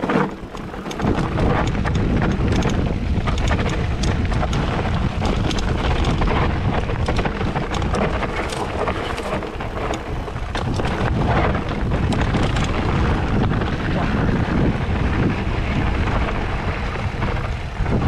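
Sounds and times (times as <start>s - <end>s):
tyres crunching on stones: 0.0s - 14.0s
bike clicking and rattling: 0.0s - 18.0s
wind buffeting microphone: 0.0s - 18.0s.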